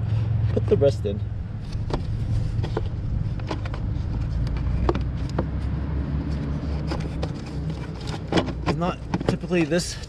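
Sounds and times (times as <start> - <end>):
steady low rumble: 0.0 - 7.8.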